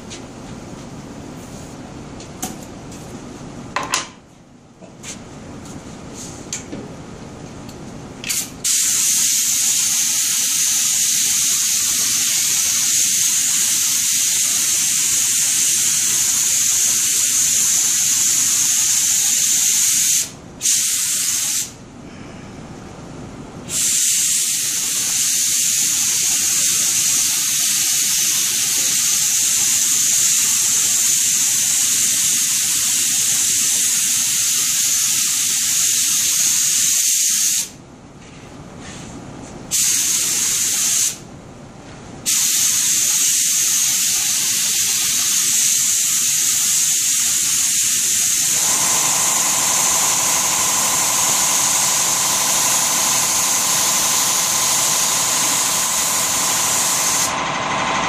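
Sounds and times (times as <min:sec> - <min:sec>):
spray gun hissing: 0:08.6 - 0:21.8, 0:23.7 - 0:37.7, 0:39.7 - 0:41.2, 0:42.3 - 0:57.5.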